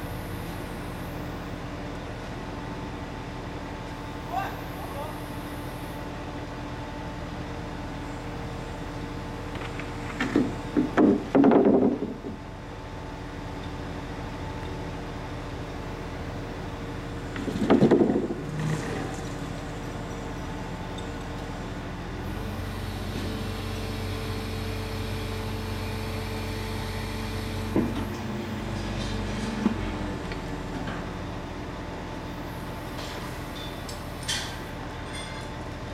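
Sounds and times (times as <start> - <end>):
heavy diesel engine running: 0.0 - 35.9
loud metal knocks: 10.2 - 12.2.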